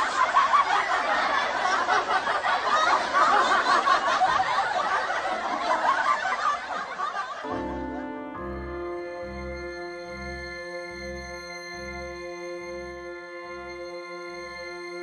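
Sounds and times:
people laughing: 0:00.0 - 0:08.5.

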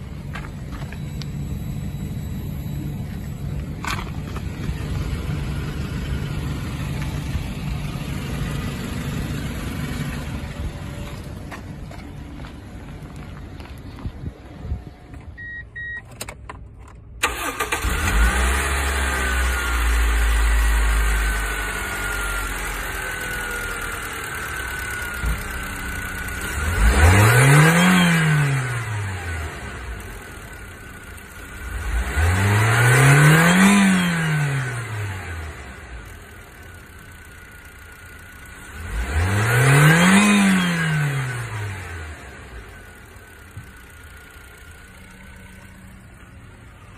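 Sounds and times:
car engine starting and idling: 0:00.0 - 0:46.9
engine whine: 0:00.0 - 0:46.9
short beep: 0:15.3 - 0:16.2
engine revving: 0:17.2 - 0:36.7, 0:37.8 - 0:46.4.

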